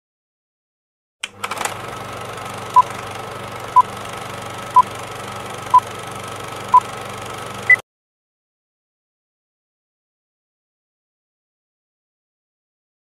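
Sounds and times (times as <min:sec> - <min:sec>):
film projector whirring clatter: 0:01.2 - 0:07.8.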